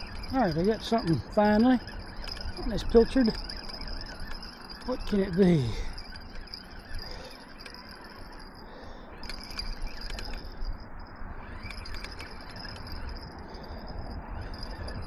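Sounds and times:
fishing reel clicking and rattling: 0.0 - 15.0
wind on microphone: 9.2 - 15.0.

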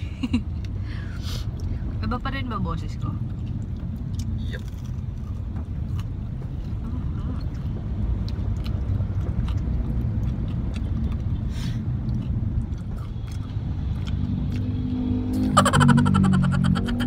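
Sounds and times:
car road rumble: 0.0 - 17.0
chewing clicks: 7.4 - 11.4, 12.0 - 14.9.

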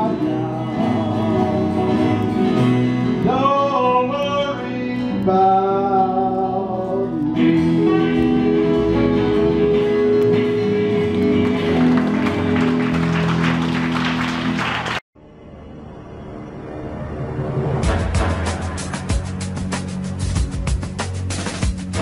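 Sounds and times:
country band with steel guitar: 0.0 - 14.6
audience applause: 10.9 - 15.0.

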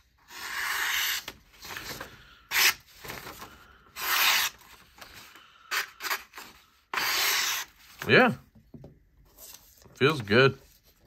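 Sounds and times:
paper rustling: 1.2 - 5.4.

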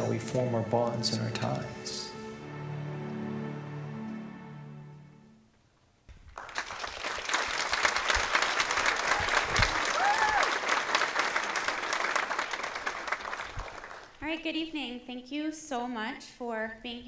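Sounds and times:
film soundtrack music: 0.0 - 5.5
audience applauding: 6.3 - 14.2
person cheering: 9.1 - 10.6.

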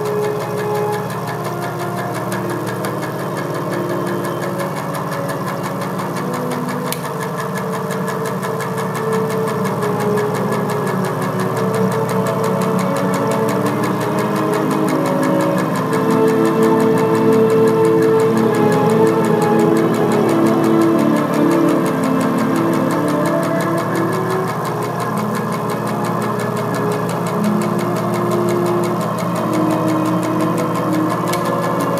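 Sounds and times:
held shifting tones: 0.0 - 31.9
machine-like drone: 0.0 - 31.9.

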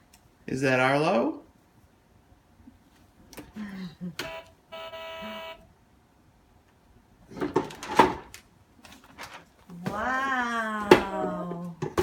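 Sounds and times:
toy car electronic tone: 4.2 - 5.6.

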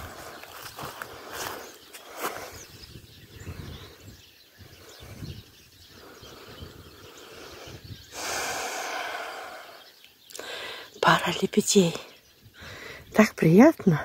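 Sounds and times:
wind rumbling on microphone: 0.0 - 10.0
faint bird chirps: 0.0 - 14.0.

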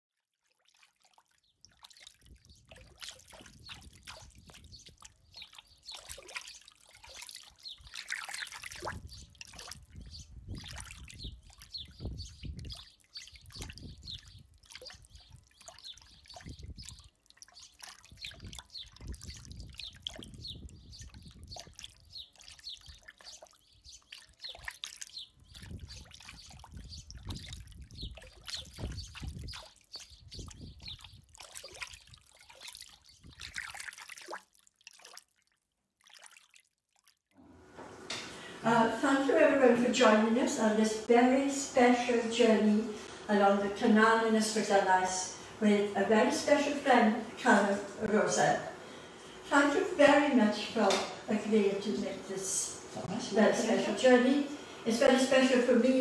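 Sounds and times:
water trickling and bubbling: 0.2 - 37.4.

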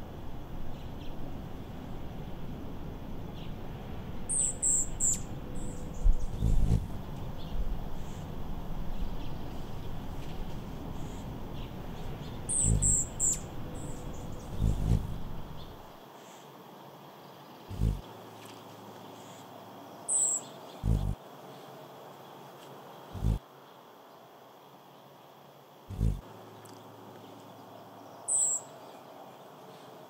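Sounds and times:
bird chirping: 4.3 - 8.3, 8.9 - 16.0, 17.3 - 18.0, 20.1 - 21.2, 23.1 - 23.4, 25.9 - 29.1
steady low rumble: 5.3 - 10.2, 11.0 - 16.0, 17.7 - 18.0, 20.8 - 21.2, 23.2 - 23.4, 25.9 - 26.2.

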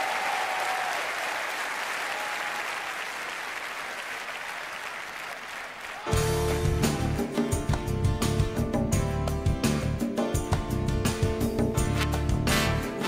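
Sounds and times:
arena crowd applauding: 0.0 - 7.0
loud band music: 6.1 - 13.0.

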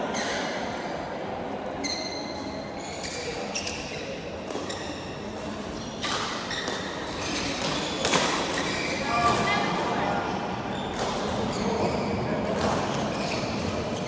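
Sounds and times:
shoes squeaking on court floor: 1.8 - 14.0
rackets hitting shuttlecocks: 6.0 - 9.4.

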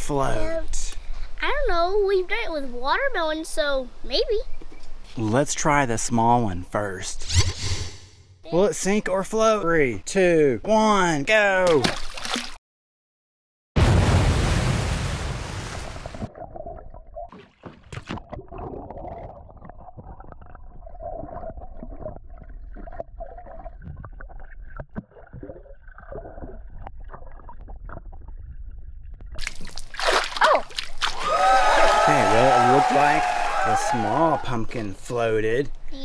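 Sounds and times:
object splashing into pool: 11.6 - 12.6, 29.4 - 32.1
water splashing at surface: 11.6 - 12.6, 29.3 - 32.8
underwater gurgling and bubbling: 18.2 - 29.4.

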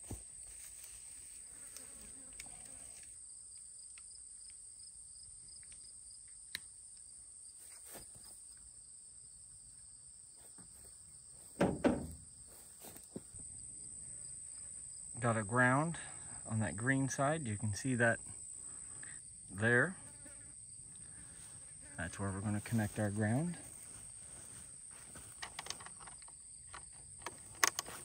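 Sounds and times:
crickets trilling: 0.1 - 28.0
rustling thumps: 10.6 - 13.4.

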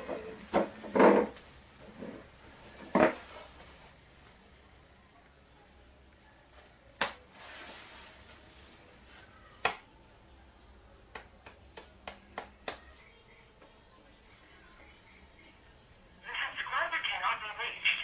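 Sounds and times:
chair creaking from movement: 0.0 - 3.2.

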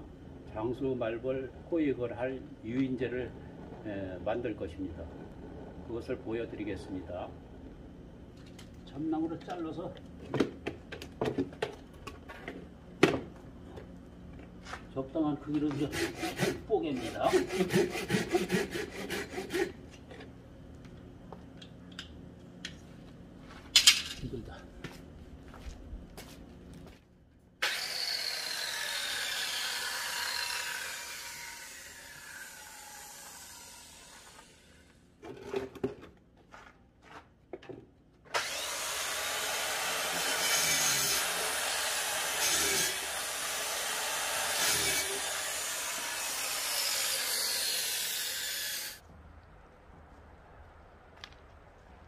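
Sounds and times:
power saw cutting wood: 15.7 - 19.8, 27.6 - 35.0, 38.3 - 49.0.

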